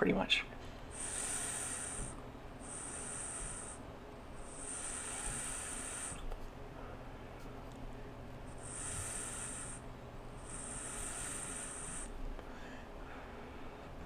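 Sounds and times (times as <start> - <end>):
vape hissing when drawn on: 0.9 - 3.8, 4.4 - 6.2, 8.6 - 9.8, 10.4 - 12.2
vapour exhaled: 0.9 - 3.8, 4.4 - 6.4, 8.6 - 12.6.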